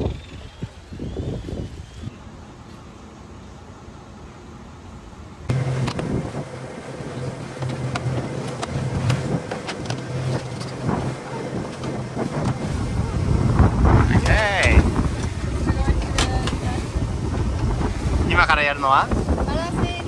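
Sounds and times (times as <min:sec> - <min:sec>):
wind buffeting microphone: 0:00.0 - 0:02.2, 0:05.5 - 0:20.0
motorboat engine running: 0:05.4 - 0:20.0.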